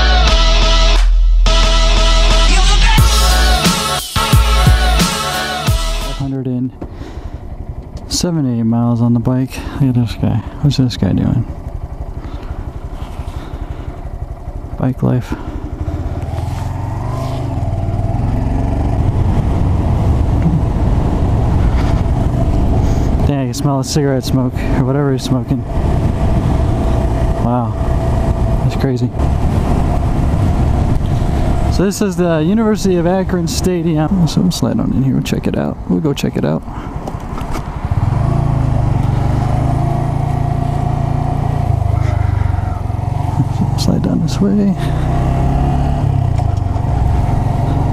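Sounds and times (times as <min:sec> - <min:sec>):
motorcycle engine: 0:01.5 - 0:47.9
wind noise: 0:16.5 - 0:23.6, 0:24.2 - 0:35.9.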